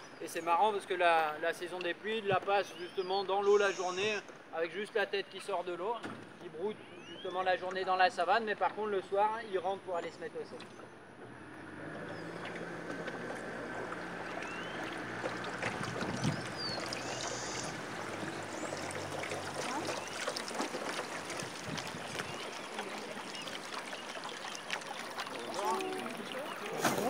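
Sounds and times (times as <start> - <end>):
water splashing along a boat hull: 10.5 - 27.0
outboard motor hum: 10.7 - 27.0.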